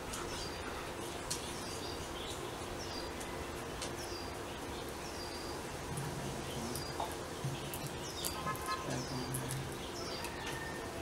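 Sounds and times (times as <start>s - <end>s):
bird calling: 6.6s - 10.7s.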